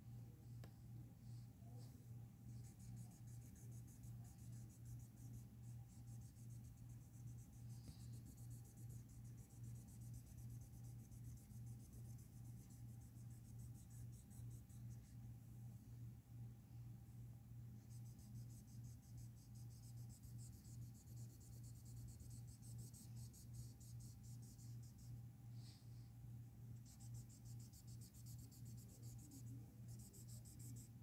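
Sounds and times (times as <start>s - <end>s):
low steady hum: 0.0s - 31.0s
marker scratching on paper: 2.5s - 15.2s, 17.9s - 25.1s, 26.8s - 31.0s.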